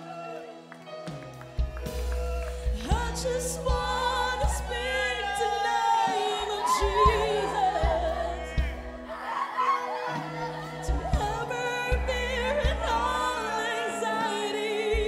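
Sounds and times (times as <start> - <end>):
low instrumental accompaniment: 0.0 - 9.3
choir singing gospel song: 1.8 - 15.0.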